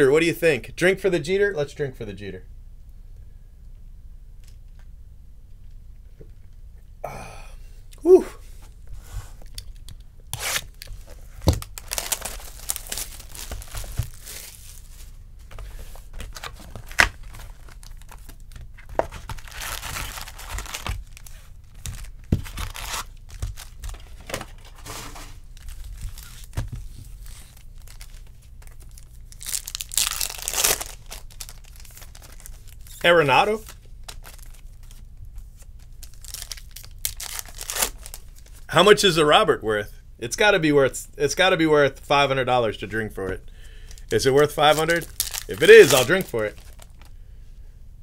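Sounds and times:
foil pack crinkling and tearing: 9.6s - 38.7s, 43.9s - 47.1s
cardboard and wrapping tearing: 10.3s - 15.1s, 16.1s - 35.0s, 36.0s - 38.6s, 44.0s - 47.1s
card packs rustling: 10.5s - 38.7s, 43.8s - 47.2s.

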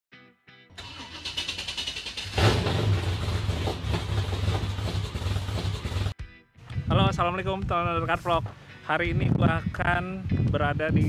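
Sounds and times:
engine blips: 0.8s - 6.1s
engine revving and running: 0.8s - 6.1s.

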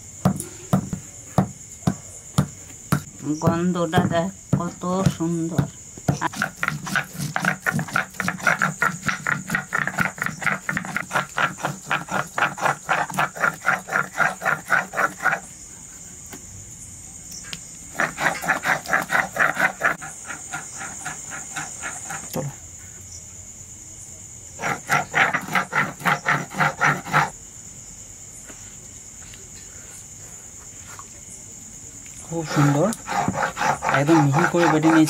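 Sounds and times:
crickets chirring: 0.0s - 35.0s
stone scraping on stone slab: 6.1s - 15.4s, 17.9s - 22.4s, 24.6s - 27.3s, 32.4s - 35.0s.

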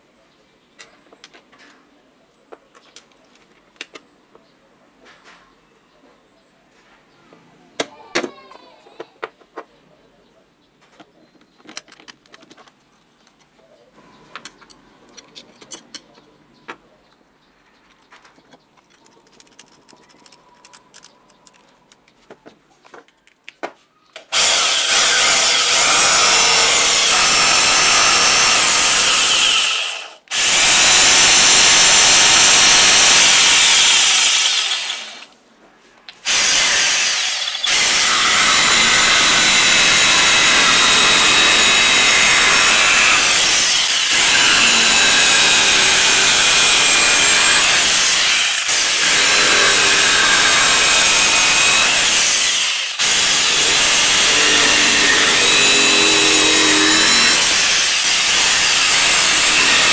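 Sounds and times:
small metal parts clicking: 17.9s - 22.1s
electric jigsaw running: 24.3s - 35.3s, 36.3s - 59.9s.

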